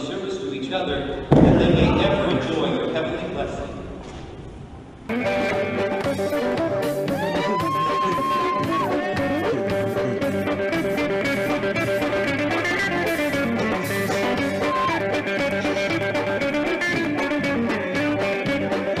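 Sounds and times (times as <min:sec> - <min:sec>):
drums keeping a beat: 0:05.1 - 0:19.0
electric guitar: 0:05.1 - 0:19.0
live band music: 0:05.1 - 0:19.0.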